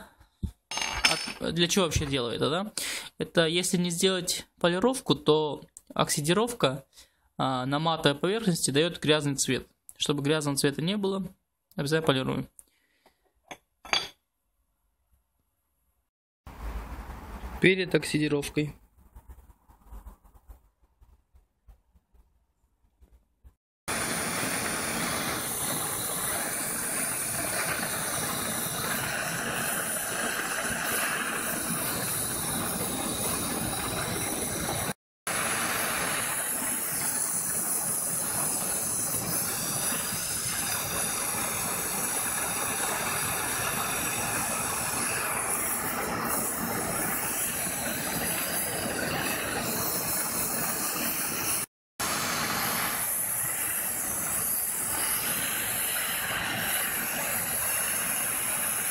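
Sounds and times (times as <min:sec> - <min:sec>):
gas torch hissing: 0:23.9 - 0:58.9.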